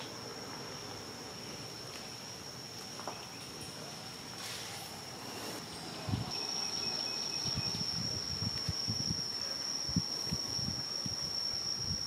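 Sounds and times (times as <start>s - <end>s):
insects droning: 0.0s - 12.0s
hiss: 3.8s - 6.8s.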